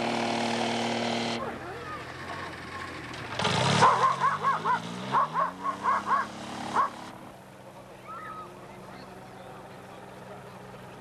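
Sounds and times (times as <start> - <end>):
dog barking: 3.8 - 7.0
motorised hang glider engine: 6.1 - 11.0.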